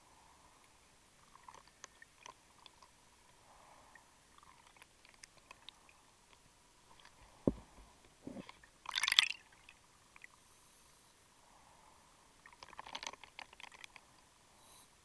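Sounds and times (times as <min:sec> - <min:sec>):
dull knock: 0:07.4 - 0:08.4.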